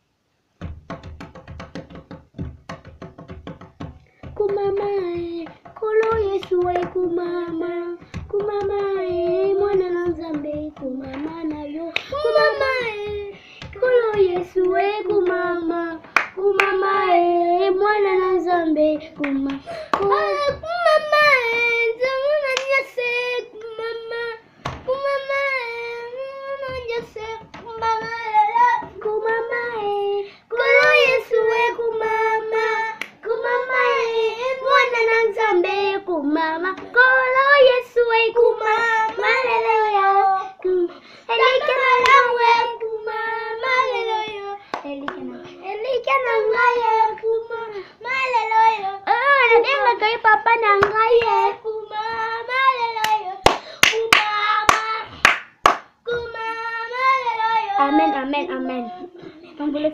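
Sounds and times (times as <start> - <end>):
hand claps: 0.6 - 17.0, 19.1 - 20.6, 22.5 - 22.9, 33.0 - 33.2, 41.9 - 42.3, 44.7 - 45.3, 50.8 - 51.4, 53.0 - 56.2
child singing solo: 4.4 - 55.2, 56.0 - 59.4.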